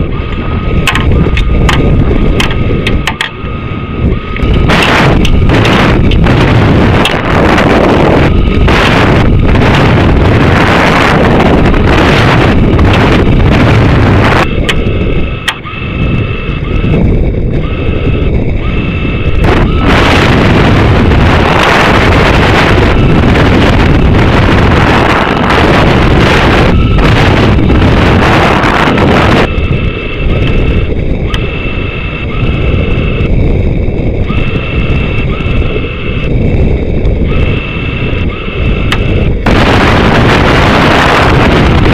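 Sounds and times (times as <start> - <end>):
air rushing buffeting microphone: 0.0 - 41.9
faint steady tones: 0.0 - 41.9.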